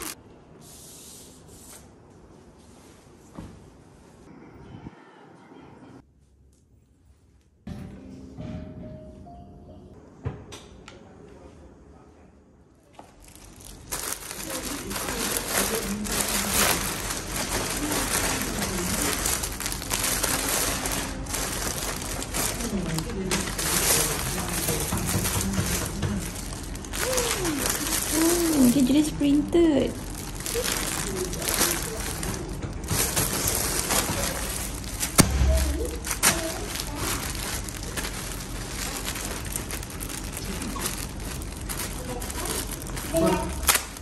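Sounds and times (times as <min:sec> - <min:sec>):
plastic bags crinkling: 0:13.0 - 0:44.0.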